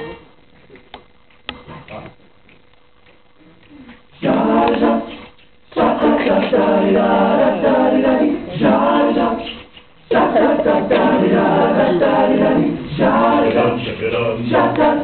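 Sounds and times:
men singing a cappella in harmony: 0:04.2 - 0:15.0.

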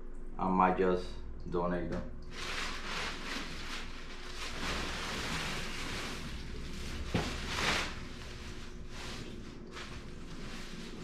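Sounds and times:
rustling through bag of shoes: 0:02.3 - 0:11.0.

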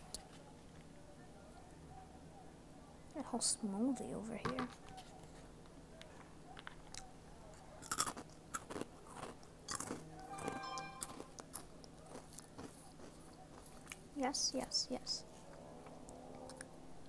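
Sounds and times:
crunchy snack being chewed: 0:06.6 - 0:10.2, 0:11.4 - 0:14.1
short pitched tone: 0:10.2 - 0:11.4.

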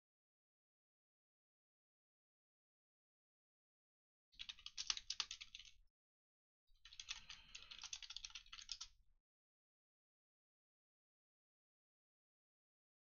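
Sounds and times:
computer keyboard typing: 0:04.4 - 0:05.7, 0:06.9 - 0:08.9.

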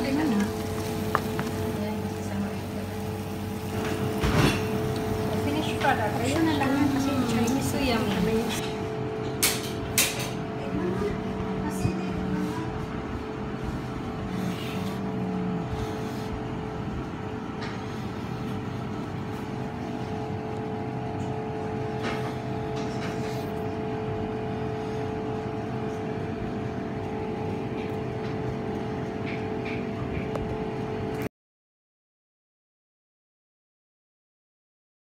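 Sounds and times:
steady mechanical hum: 0:00.0 - 0:31.3.

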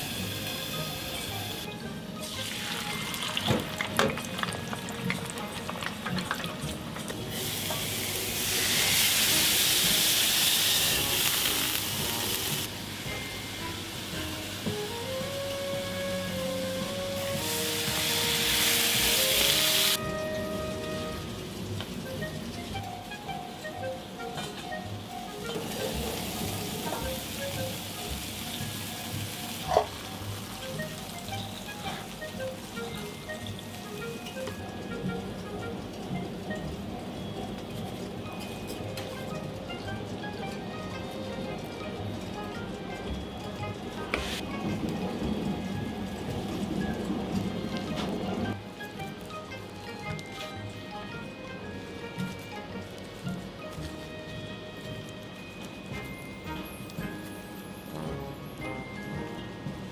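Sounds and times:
food sizzling on a griddle: 0:00.0 - 0:23.7, 0:25.3 - 0:44.5
background music: 0:00.0 - 0:59.9
oil bubbling in deep fryer: 0:00.0 - 0:59.9
food crackling in hot fat: 0:02.4 - 0:12.7, 0:45.7 - 0:58.3.

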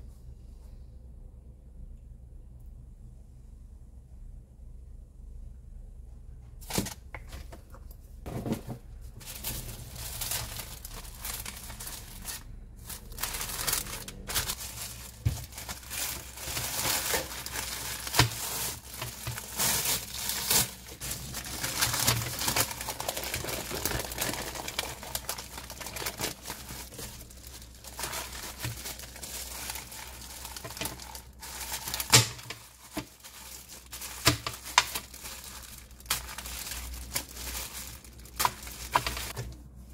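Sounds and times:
plastic wrap and paper crinkling: 0:08.2 - 0:39.9.

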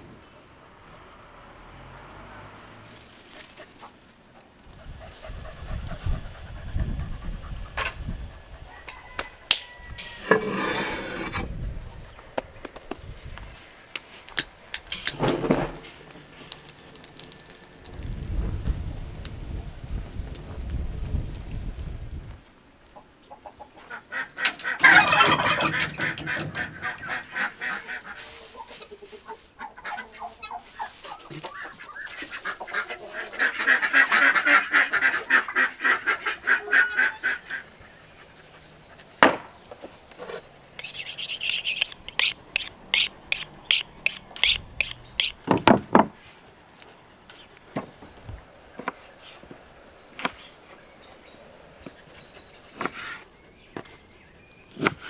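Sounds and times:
fowl honking and cackling: 0:23.3 - 0:37.9
knife on sharpening steel: 0:40.8 - 0:45.4.

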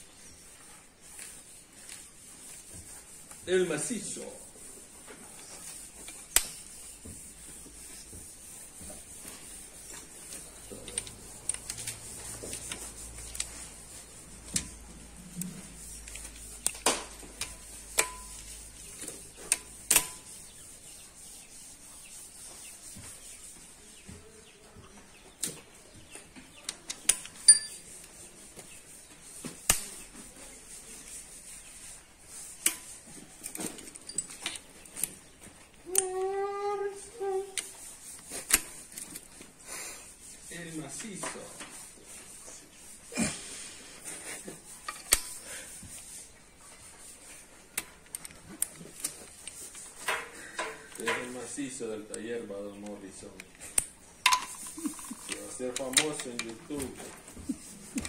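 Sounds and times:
socket wrench metallic clinks: 0:27.5 - 0:27.8.

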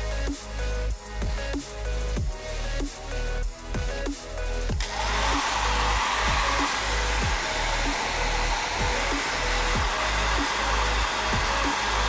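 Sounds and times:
electronic music with beat: 0:00.0 - 0:12.0
hair dryer blowing: 0:04.7 - 0:12.0.

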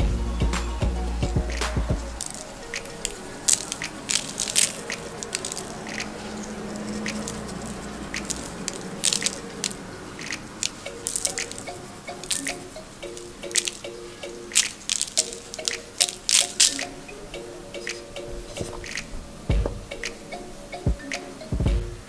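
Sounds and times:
faint music: 0:00.0 - 0:22.0
seeds landing with small ticks: 0:01.6 - 0:17.1.

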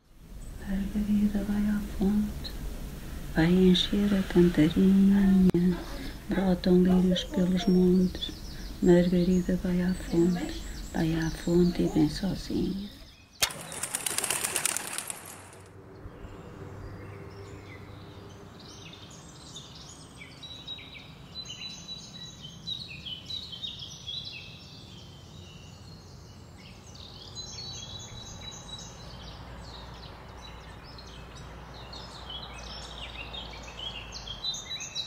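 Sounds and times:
small birds chirping: 0:00.0 - 0:35.0
low background rumble: 0:00.2 - 0:13.1.

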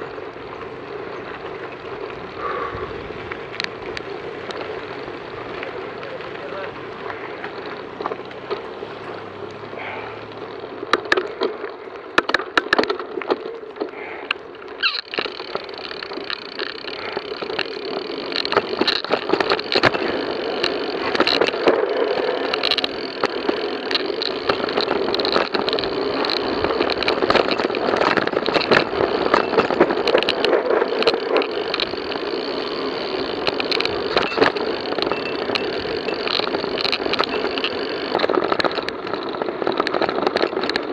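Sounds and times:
bike rattling and knocking: 0:00.0 - 0:40.9
bike tyres rolling on dirt: 0:00.0 - 0:40.9
wind noise: 0:14.8 - 0:40.9.

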